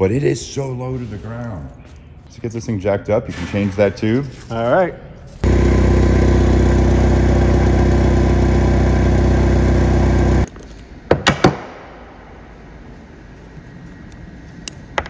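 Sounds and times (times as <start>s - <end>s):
forklift engine idling: 5.4s - 10.5s.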